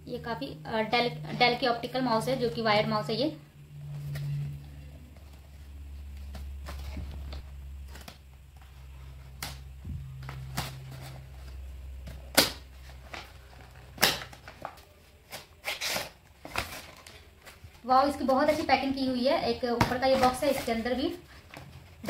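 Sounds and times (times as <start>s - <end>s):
low steady hum: 0.0s - 22.0s
paper and cardboard rustling: 10.0s - 19.0s, 19.6s - 22.0s.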